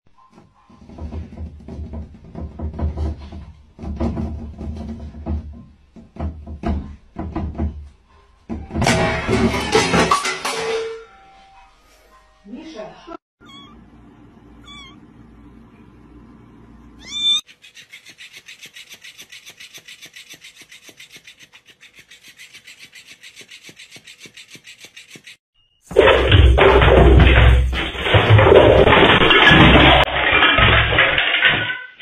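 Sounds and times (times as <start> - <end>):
kitten meowing: 13.4 - 13.8, 14.6 - 15.0, 17.0 - 17.4.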